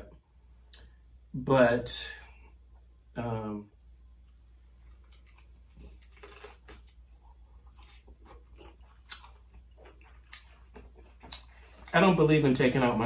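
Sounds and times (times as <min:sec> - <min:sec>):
person chewing crispy food: 0:04.2 - 0:12.0.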